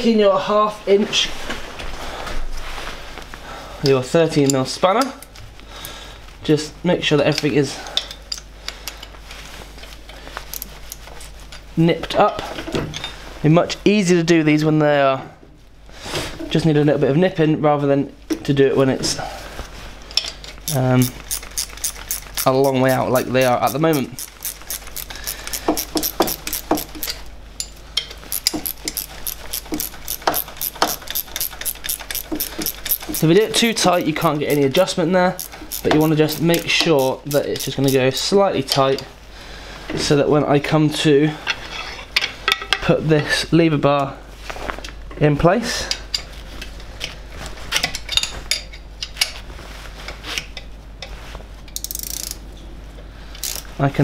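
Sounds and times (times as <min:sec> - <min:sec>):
ratchet wrench clicking: 0:20.7 - 0:27.2, 0:28.3 - 0:38.2, 0:51.8 - 0:52.4, 0:53.4 - 0:53.7.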